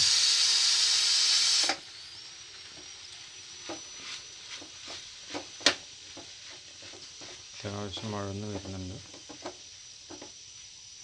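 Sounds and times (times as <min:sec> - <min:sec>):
steam hissing from pressure cooker: 0:00.0 - 0:11.0
onions sizzling in pan: 0:02.6 - 0:11.0.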